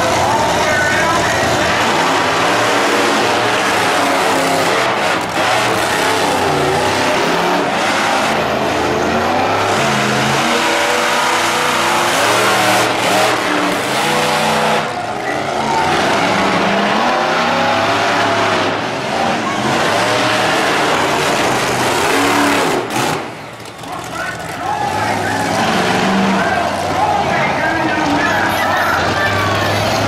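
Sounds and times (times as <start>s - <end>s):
truck engines revving loudly: 0.0s - 30.0s.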